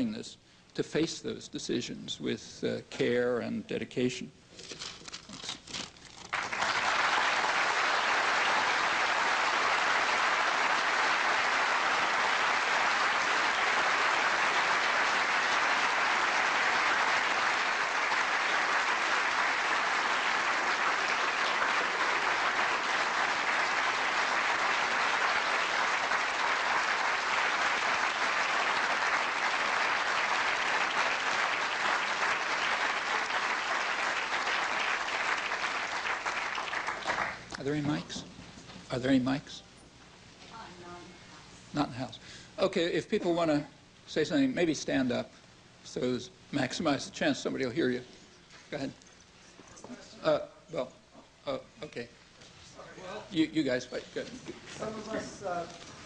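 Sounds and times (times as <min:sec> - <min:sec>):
audience applauding: 0:06.1 - 0:37.5.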